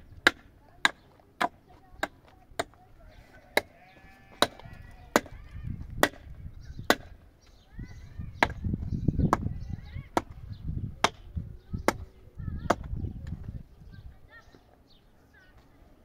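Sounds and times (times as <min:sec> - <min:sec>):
birds chirping: 0:00.0 - 0:16.0
sharp chopping strikes: 0:06.0 - 0:07.2.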